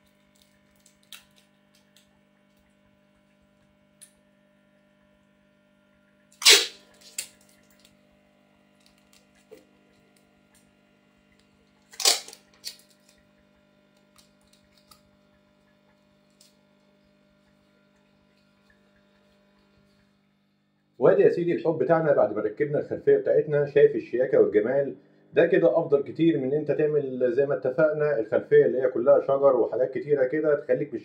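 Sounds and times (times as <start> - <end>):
light crinkles and taps: 0.0 - 4.2, 8.8 - 10.7, 14.0 - 16.6
faint electrical hum: 0.0 - 31.0.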